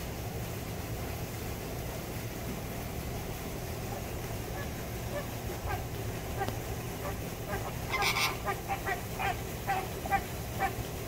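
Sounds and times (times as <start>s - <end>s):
flamingos honking: 3.8s - 11.0s.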